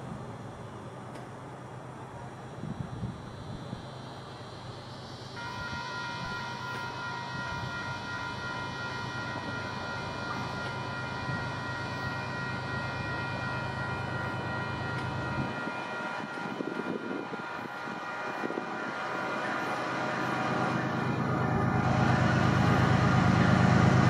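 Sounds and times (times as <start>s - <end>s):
train air horn blast: 5.3s - 24.0s.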